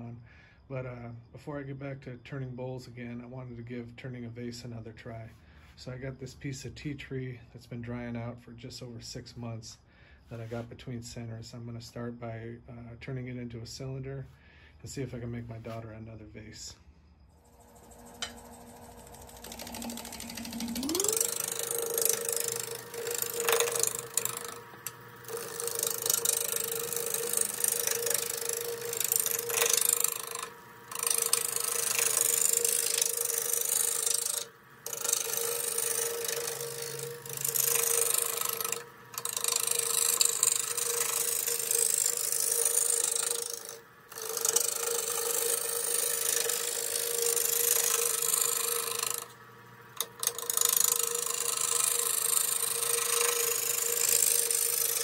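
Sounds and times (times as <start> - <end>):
wood lathe hum: 17.4 - 55.0
gouge cutting wood shavings: 17.5 - 55.0.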